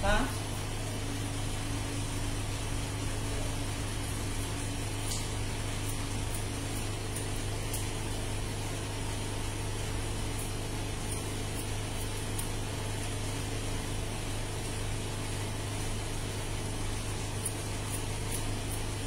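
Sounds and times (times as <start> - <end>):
low machine hum: 0.0 - 19.0
scissor snips: 5.0 - 8.0, 10.4 - 12.6, 17.4 - 19.0.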